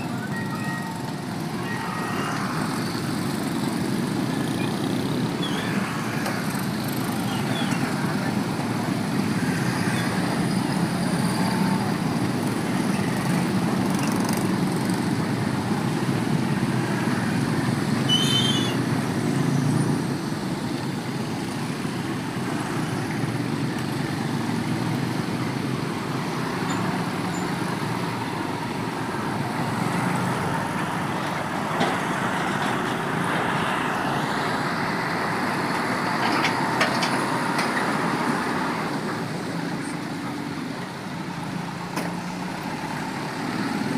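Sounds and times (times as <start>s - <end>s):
heavy trucks passing: 0.0s - 43.9s
motorcycle engines: 0.0s - 43.9s
high squeal: 18.0s - 18.9s.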